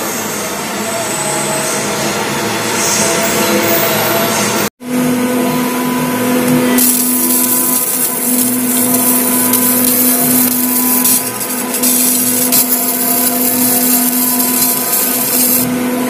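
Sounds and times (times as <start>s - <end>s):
laser marking machine humming: 4.9s - 16.0s
machine hiss: 6.8s - 15.7s.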